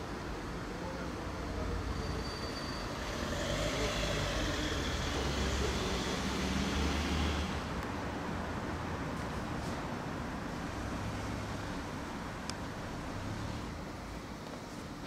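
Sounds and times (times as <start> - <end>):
road traffic noise: 0.0 - 15.0.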